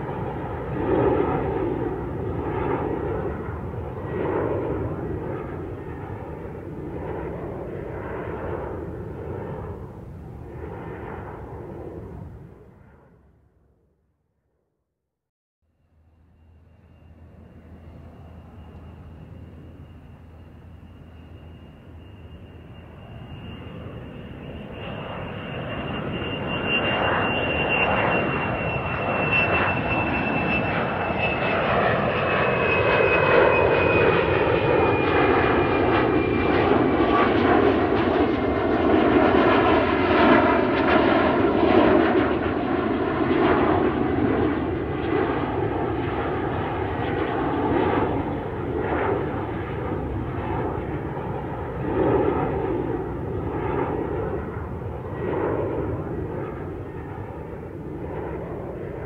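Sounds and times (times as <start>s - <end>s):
jet engines at take-off: 0.0s - 14.0s, 15.7s - 59.0s.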